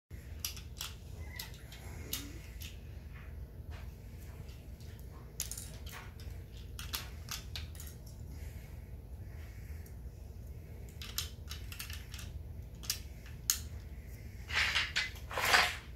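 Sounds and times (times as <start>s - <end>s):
toy train track clicking: 0.3s - 2.8s, 5.4s - 8.0s.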